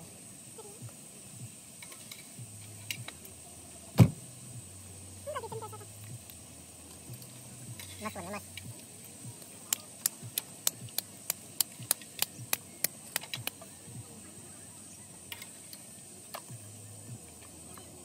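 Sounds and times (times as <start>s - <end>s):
dough patted between palms: 8.7s - 13.6s.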